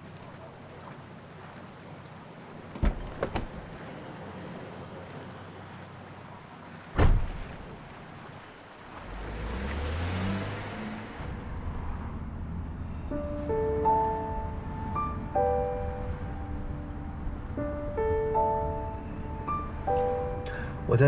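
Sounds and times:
road and tyre hiss: 2.4 - 21.0
car door thumping shut: 2.8 - 3.7, 7.0 - 7.4
car engine revving: 9.0 - 12.8.

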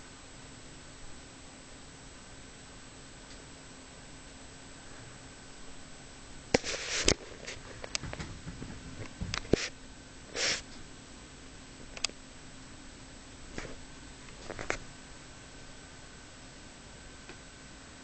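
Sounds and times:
faint steady hum: 0.0 - 18.0
cat sniffing: 10.3 - 10.6.

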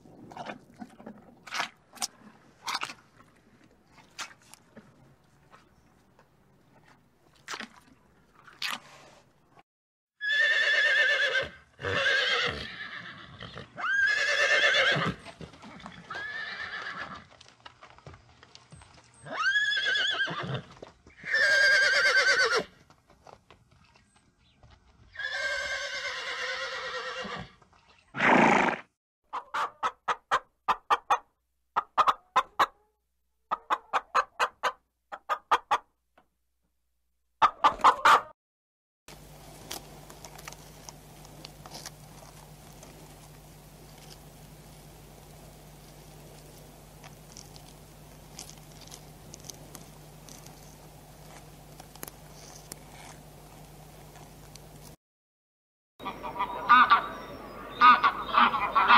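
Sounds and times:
horse neighing: 10.2 - 15.2, 16.1 - 17.2, 19.3 - 22.7, 25.2 - 27.5
hens clucking: 29.3 - 31.2, 31.8 - 32.9, 33.5 - 35.9, 37.4 - 38.3, 56.0 - 58.9.

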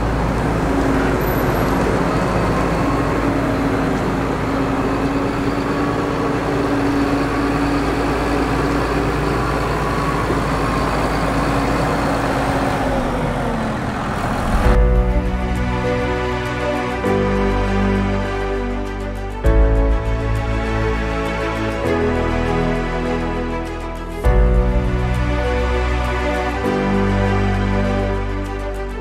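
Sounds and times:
tractor engine running with whine: 0.0 - 29.0
deep rumble: 12.8 - 22.5, 23.1 - 26.7.

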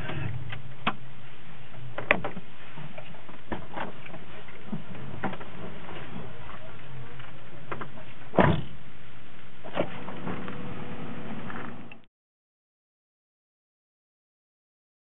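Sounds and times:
car door opening: 9.6 - 11.9.

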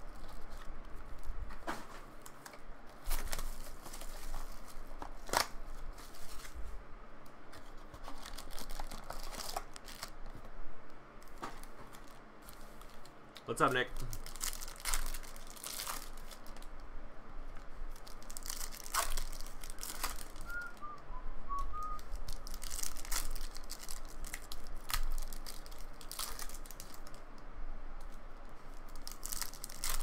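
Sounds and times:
wrapper tearing and crinkling: 2.1 - 6.6, 7.6 - 10.3, 13.9 - 16.8, 17.9 - 20.7, 22.0 - 27.3, 28.7 - 30.0.

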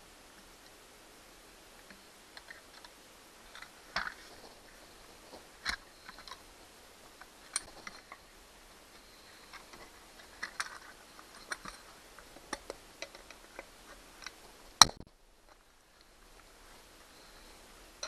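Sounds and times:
small clicks taps and rustles: 7.1 - 8.2, 8.9 - 16.9.

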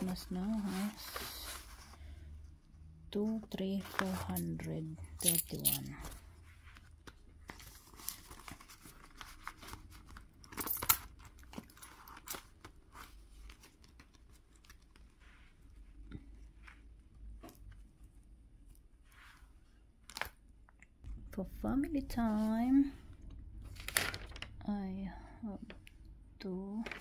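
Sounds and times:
banknotes and envelope rustling: 0.0 - 2.3, 3.2 - 20.4.

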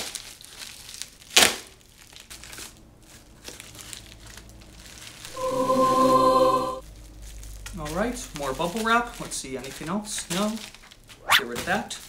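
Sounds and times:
plastic mailer crinkling: 0.0 - 5.3, 6.9 - 12.0
plastic ripping: 0.0 - 5.3, 6.9 - 12.0
held musical note: 5.3 - 6.8.

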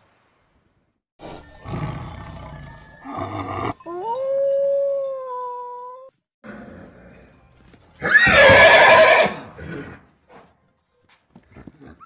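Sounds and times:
wolf howl: 3.5 - 6.1.

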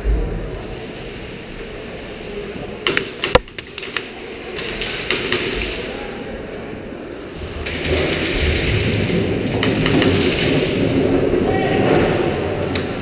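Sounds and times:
airsoft gunfire: 2.9 - 5.9, 7.7 - 10.9.

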